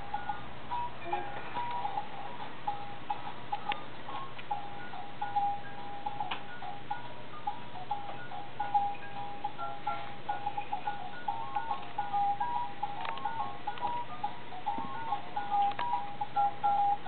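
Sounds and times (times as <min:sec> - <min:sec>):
electronic toy beeping tune: 0:00.0 - 0:17.0.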